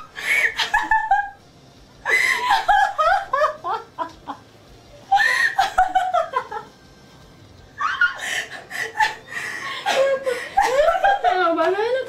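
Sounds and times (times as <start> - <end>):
women giggling: 0.0 - 1.4, 2.1 - 4.5, 5.1 - 6.7, 7.8 - 12.0.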